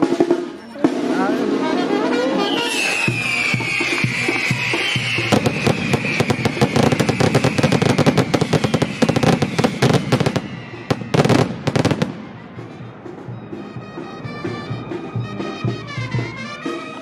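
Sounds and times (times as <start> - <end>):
high falling whistle: 2.2 - 12.4
firecrackers cracking: 2.3 - 12.4
loud bangs: 2.7 - 15.2.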